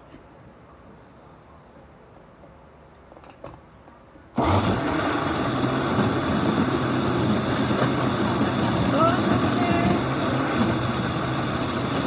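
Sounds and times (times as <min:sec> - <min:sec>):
blender motor running: 0:04.4 - 0:12.0.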